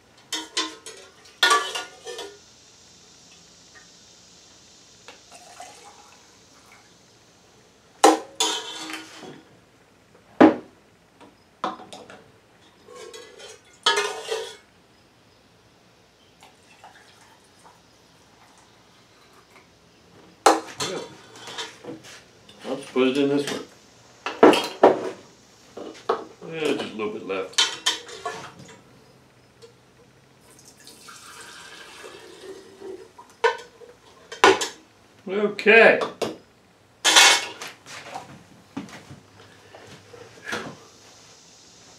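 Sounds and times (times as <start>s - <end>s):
metal ladle scraping a pot: 8.4s - 9.3s, 12.8s - 14.6s
liquid trickling into glass jar: 30.5s - 32.8s.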